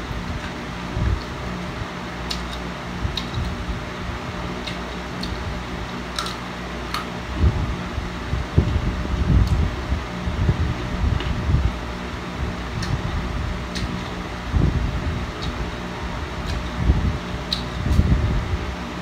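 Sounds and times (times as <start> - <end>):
electric fan running: 0.0 - 19.0
carrot crunching as it is chewed: 12.8 - 14.2, 16.4 - 16.8.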